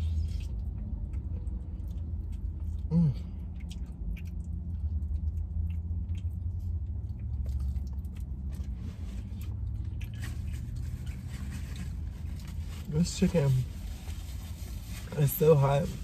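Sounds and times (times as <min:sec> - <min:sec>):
person chewing crunchy food: 0:00.0 - 0:12.6
steady low hum: 0:00.0 - 0:16.0.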